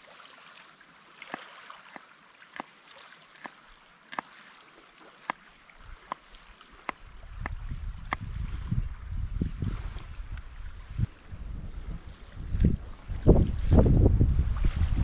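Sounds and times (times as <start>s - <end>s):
knife cutting on wooden board: 3.4s - 4.5s
wind on microphone: 6.8s - 15.0s.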